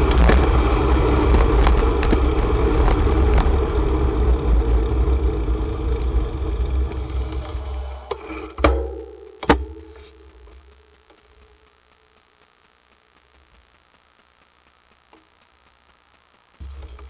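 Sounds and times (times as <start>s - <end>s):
wind buffeting microphone: 0.0s - 7.6s
bicycle rolling noise: 0.0s - 8.7s
sharp clicks: 6.0s - 17.0s.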